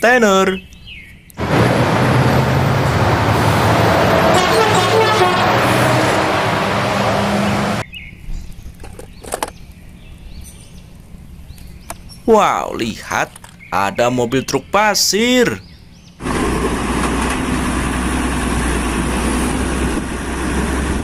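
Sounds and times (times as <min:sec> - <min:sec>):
lorry passing: 0:01.4 - 0:07.8.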